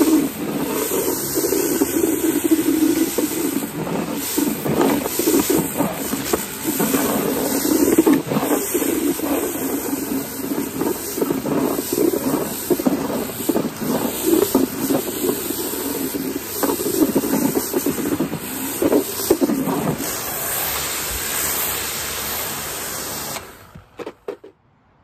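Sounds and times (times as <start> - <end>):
water spray hissing: 0.0 - 23.7
pressure washer motor drone: 0.0 - 24.0.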